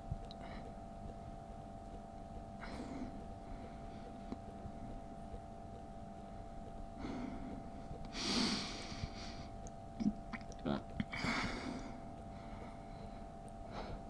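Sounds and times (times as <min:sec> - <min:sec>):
faint steady hum: 0:00.0 - 0:14.0
man breathing heavily: 0:07.0 - 0:09.6, 0:11.1 - 0:14.0.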